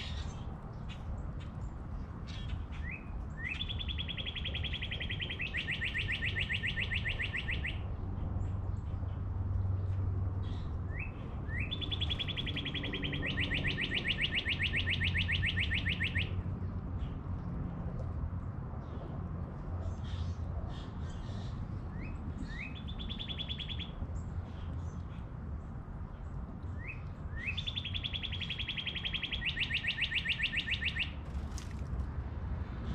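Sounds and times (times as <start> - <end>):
songbird trilling song: 0.0 - 9.7, 10.4 - 17.5, 19.9 - 25.3, 26.1 - 31.8.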